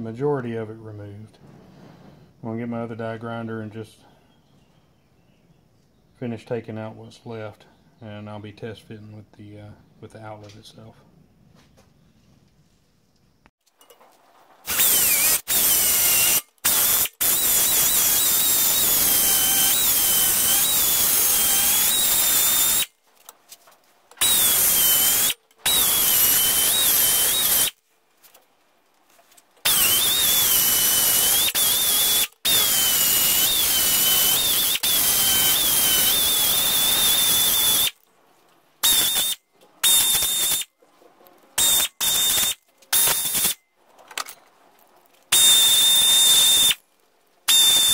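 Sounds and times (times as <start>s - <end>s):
air die grinder whining: 14.6s - 22.9s, 24.2s - 27.8s, 29.6s - 38.0s, 38.8s - 40.7s, 41.6s - 43.6s, 45.3s - 46.8s, 47.5s - 47.9s.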